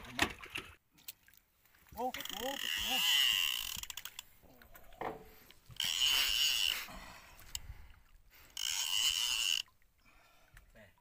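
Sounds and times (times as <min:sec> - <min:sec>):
fishing reel whirring: 0:02.2 - 0:04.3, 0:05.7 - 0:06.9, 0:08.5 - 0:09.7.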